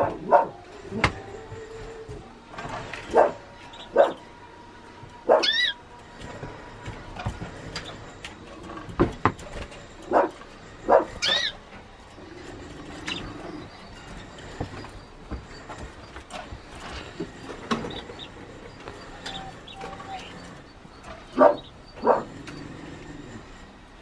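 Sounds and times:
dog barking: 0.0 - 0.6, 3.1 - 4.2, 5.2 - 5.7, 10.1 - 11.4, 21.4 - 22.4
dog yelping: 0.0 - 0.6, 3.1 - 4.2, 5.2 - 5.8, 10.9 - 11.6, 21.4 - 22.4.

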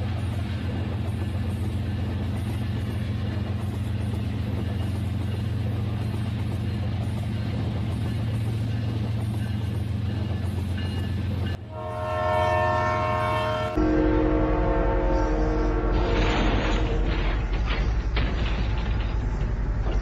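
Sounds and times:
toy train electronic horn: 11.7 - 17.0.

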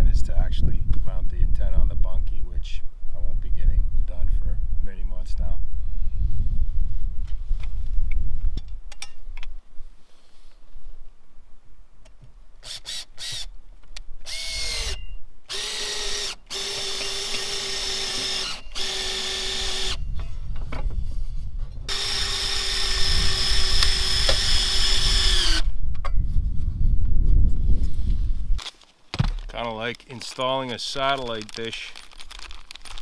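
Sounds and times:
drill motor whine: 14.3 - 20.0, 21.9 - 25.7.

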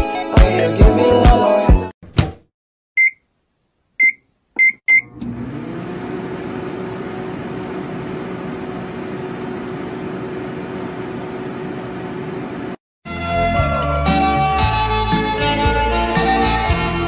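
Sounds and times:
microwave keypad beeping: 3.0 - 3.2, 4.0 - 5.1
microwave oven humming: 4.9 - 12.8.

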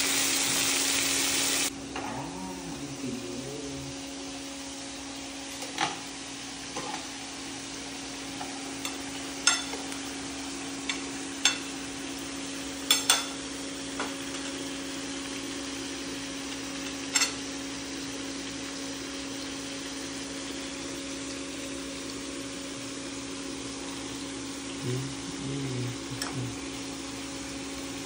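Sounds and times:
meat sizzling in a pan: 0.0 - 1.7, 4.0 - 28.0
steady hum: 1.6 - 6.6.

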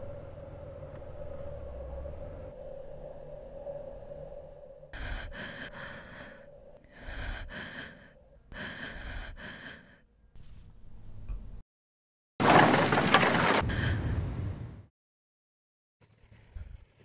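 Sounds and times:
person breathing heavily: 4.9 - 10.1.

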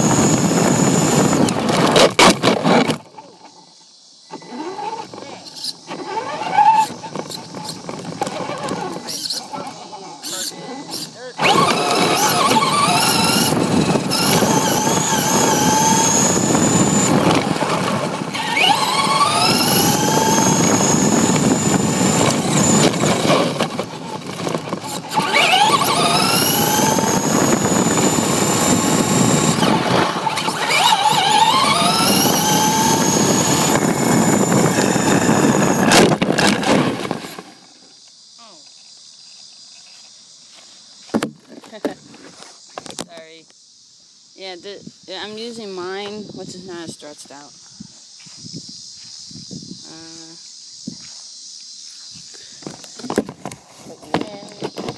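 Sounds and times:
rc car motor whining: 0.0 - 3.6, 4.2 - 38.0
small tyres rumbling on asphalt: 0.0 - 9.6, 11.4 - 38.0.

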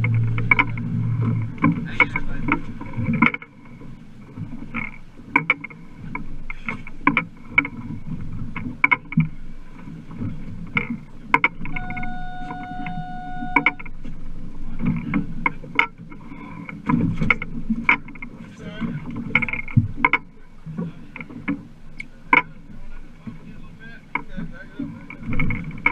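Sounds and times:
water and wind rumble: 0.0 - 25.9
steady tone: 11.7 - 14.0.

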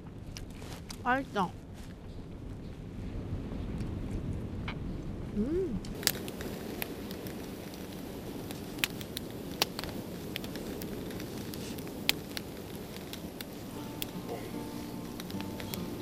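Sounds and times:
campfire crackling: 0.0 - 16.0
low rush of flame: 0.0 - 16.0
sharp fire pops: 3.2 - 16.0.

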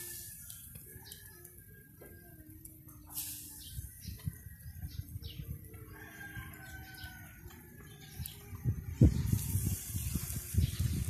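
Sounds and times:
meat sizzling on a grill: 0.0 - 1.6, 3.0 - 5.1, 6.0 - 11.0.

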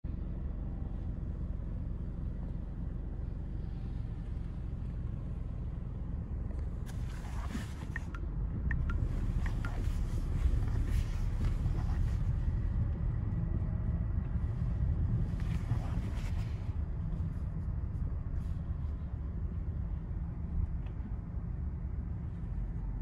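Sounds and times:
car rumble from inside: 0.1 - 23.0.

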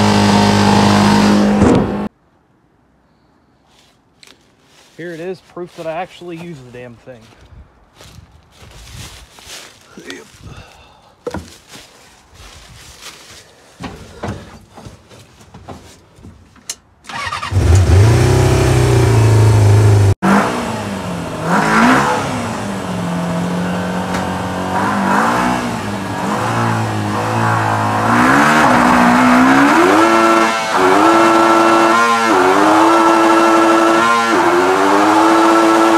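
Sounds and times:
motorcycle engine revving: 0.0 - 2.1, 17.1 - 35.9.

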